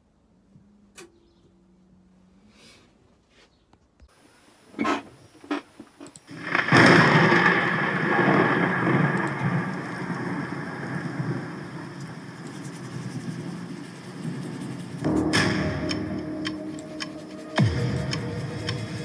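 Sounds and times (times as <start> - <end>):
rumbling rush of noise: 6.4 - 19.0.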